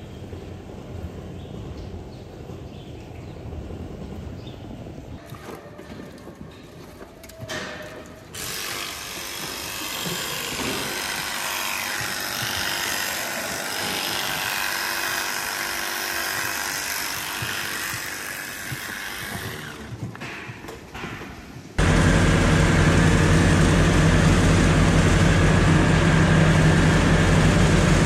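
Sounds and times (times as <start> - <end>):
electric clippers running: 8.4 - 19.9, 21.8 - 28.0.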